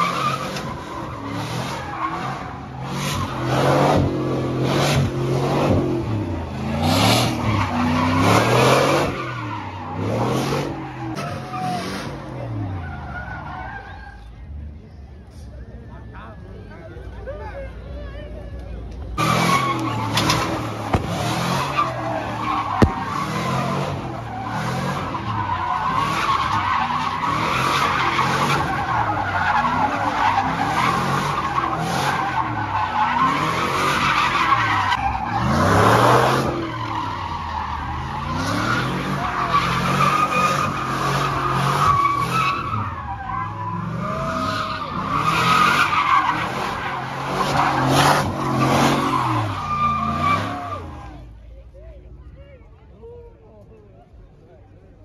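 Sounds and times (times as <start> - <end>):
truck engine revving: 0.0 - 13.0, 19.2 - 51.0
tires squealing on pavement: 0.0 - 14.5, 19.0 - 51.4
sharp bang: 20.8 - 21.6, 22.7 - 23.5.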